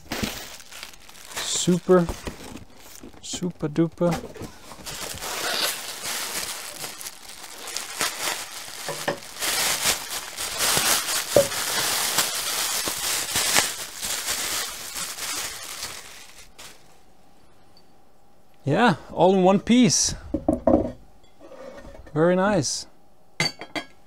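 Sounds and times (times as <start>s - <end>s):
plastic wrapping crinkling: 0.0s - 17.0s.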